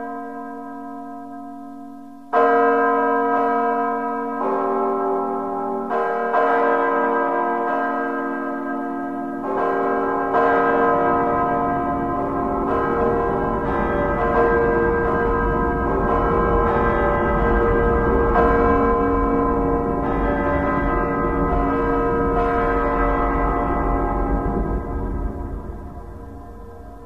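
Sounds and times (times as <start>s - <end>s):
deep bells tolling: 0.0s - 27.0s
low rumble: 11.0s - 27.0s.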